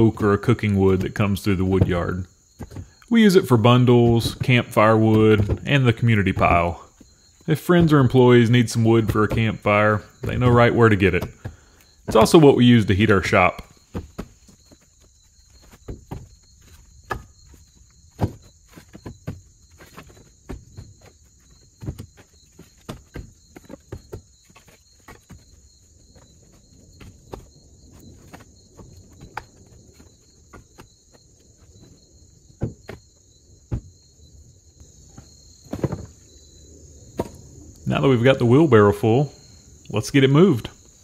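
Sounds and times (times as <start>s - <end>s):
firewood knocking into wheelbarrow: 0.0s - 25.5s, 31.8s - 34.1s, 35.1s - 36.3s, 37.2s - 37.5s.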